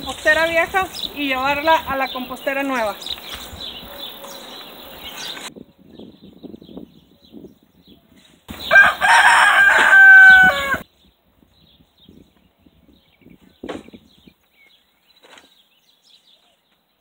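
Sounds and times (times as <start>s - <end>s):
garden fork scraping compost: 0.0s - 5.5s
rooster crowing: 8.6s - 10.8s.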